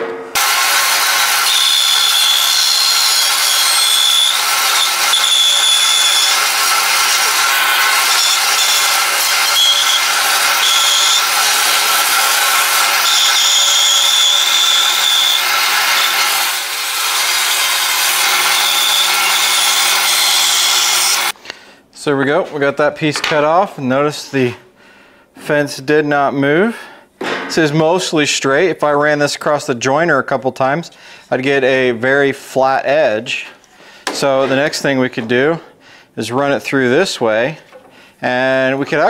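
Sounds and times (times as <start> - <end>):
bandsaw cutting wood: 0.3 - 21.4.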